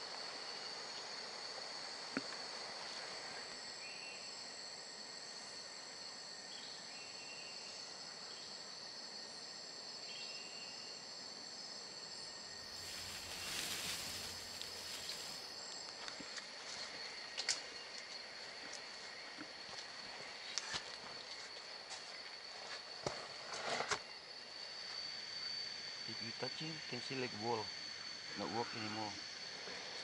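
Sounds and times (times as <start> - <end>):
insect chorus drone: 0.0 - 30.0
short insect chirps: 12.5 - 19.3.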